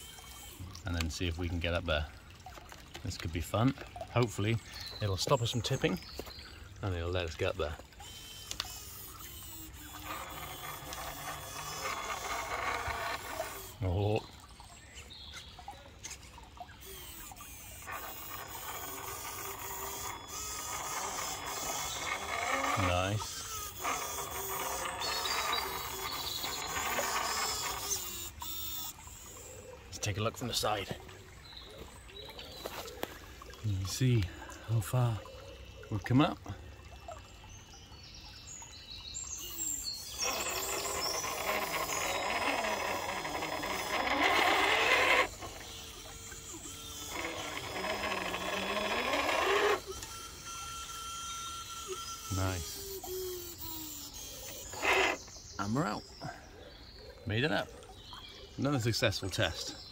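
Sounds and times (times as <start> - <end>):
electric winch whining: 0.0 - 1.2, 5.0 - 14.5, 16.8 - 30.0, 39.3 - 56.0
birds chirping: 0.0 - 59.9
sharp clicks: 8.4 - 8.8.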